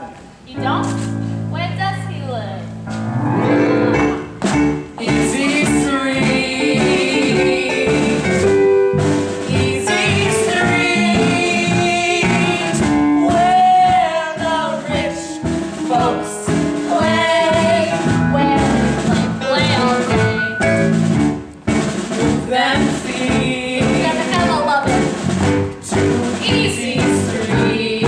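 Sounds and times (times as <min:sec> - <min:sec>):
live band playing: 0:00.0 - 0:28.0
people singing on stage: 0:05.0 - 0:08.7, 0:09.3 - 0:20.4, 0:22.2 - 0:25.1, 0:25.8 - 0:28.0.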